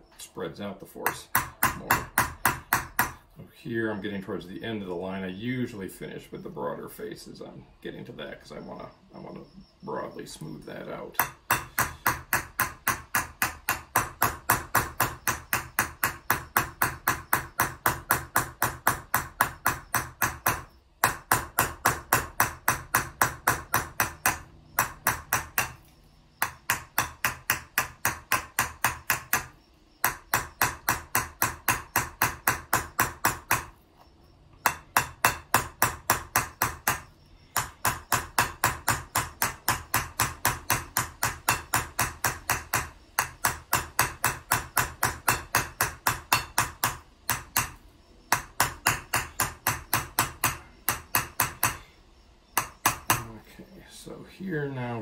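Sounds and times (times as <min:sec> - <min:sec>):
hammer striking metal vessel: 0:01.0 - 0:03.2, 0:11.2 - 0:25.8, 0:26.4 - 0:33.7, 0:34.6 - 0:51.8, 0:52.6 - 0:53.3.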